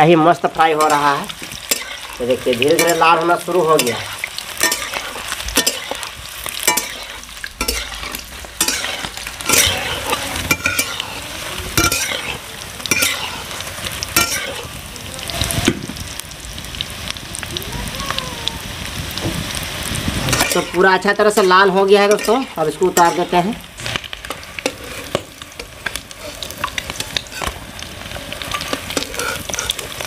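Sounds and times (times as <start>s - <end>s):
eggs sizzling in hot oil: 0.0s - 30.0s
metal spatula scraping pan: 0.6s - 14.7s, 20.3s - 27.6s, 28.4s - 30.0s.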